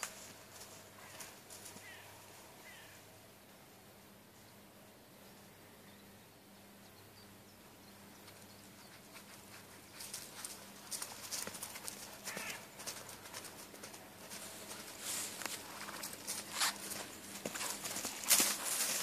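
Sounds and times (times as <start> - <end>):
hoofbeats on grass: 8.2 - 19.0.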